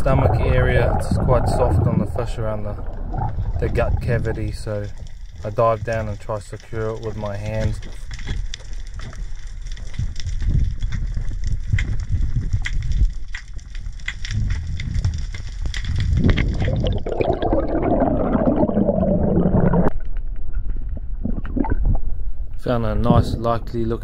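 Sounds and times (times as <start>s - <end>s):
rushing bubbles: 0.0s - 5.9s, 15.7s - 20.0s, 20.9s - 22.2s
underwater rumble of moving water: 0.0s - 24.0s
sharp clicks and crackles: 2.0s - 17.5s.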